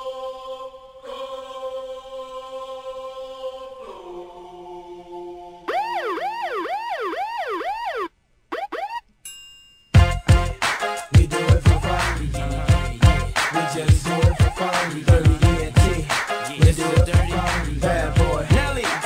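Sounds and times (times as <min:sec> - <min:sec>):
held chant-like chord: 0:00.0 - 0:05.8, 0:10.8 - 0:19.0
siren wailing: 0:05.7 - 0:09.1.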